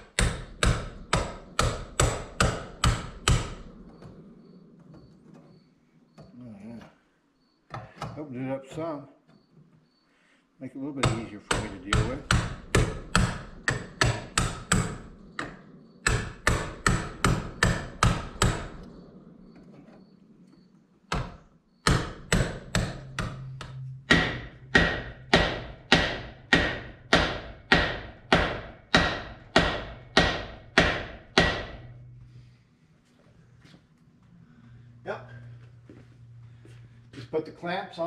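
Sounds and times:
hammer striking metal pipe: 21.2 - 31.9.

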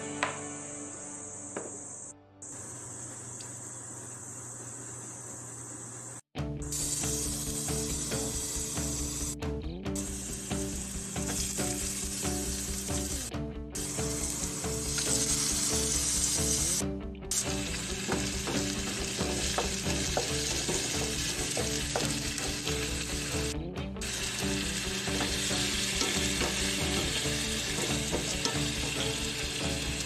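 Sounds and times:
food sizzling in hot oil: 6.7 - 9.4, 10.0 - 30.0.

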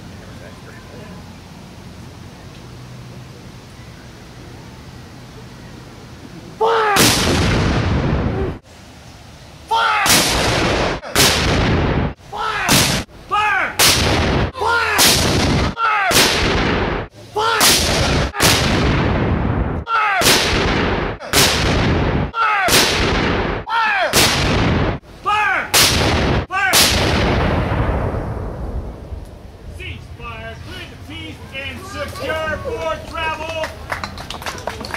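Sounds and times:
cannons firing: 7.0 - 8.3, 10.0 - 13.1, 13.8 - 25.0, 25.7 - 29.0.

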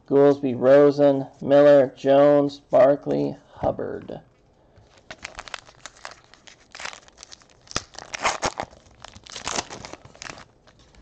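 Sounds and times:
foil wrapper crinkling: 4.8 - 11.0
foil wrapper ripping: 4.9 - 11.0.

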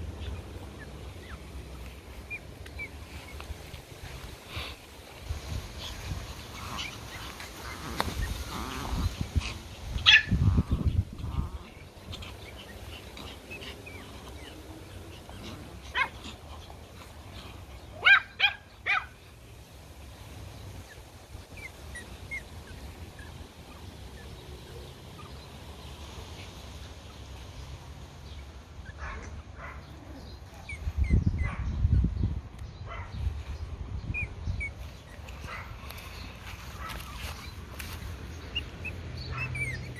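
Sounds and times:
small dogs yapping: 0.2 - 19.2, 20.8 - 25.6, 34.1 - 39.9.

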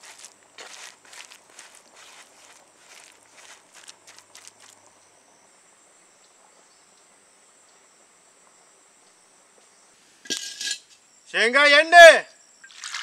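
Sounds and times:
insect chirring: 0.0 - 7.9.

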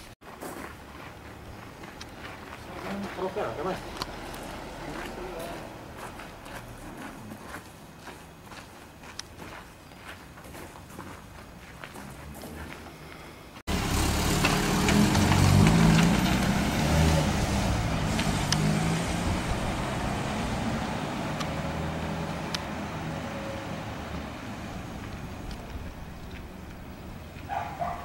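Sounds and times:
truck engine revving: 13.7 - 27.5.

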